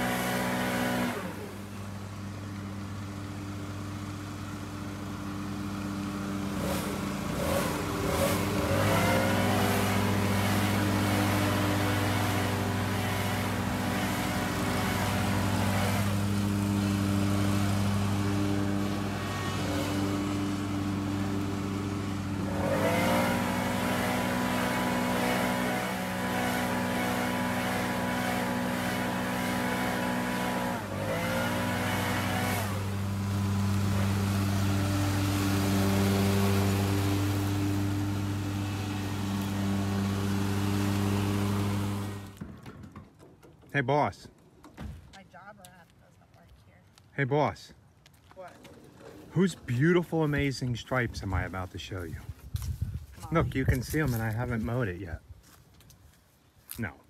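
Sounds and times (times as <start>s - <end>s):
mower engine running: 0.0s - 42.7s.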